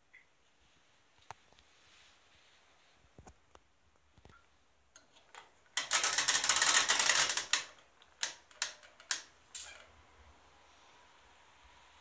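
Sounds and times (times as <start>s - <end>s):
washing machine dial clicking: 5.8s - 9.7s.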